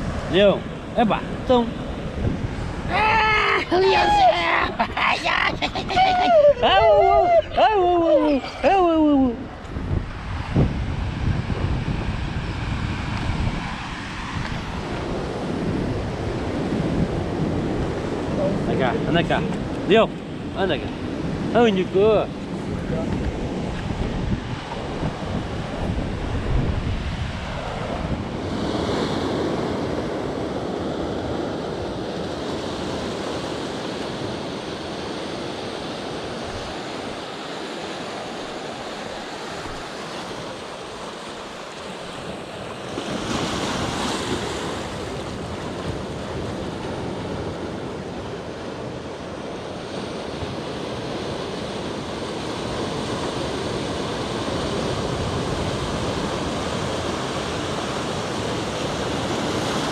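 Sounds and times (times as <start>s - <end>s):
wind buffeting microphone: 0.0s - 37.3s
sea surf washing in: 0.0s - 59.9s
waves breaking: 0.0s - 59.9s.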